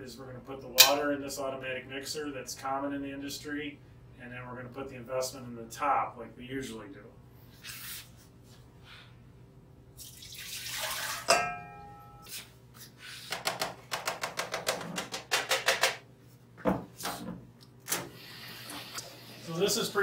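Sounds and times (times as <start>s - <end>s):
metal bowl clanking: 0.8s - 1.1s, 11.1s - 12.3s
water pouring into metal tank: 10.0s - 11.3s.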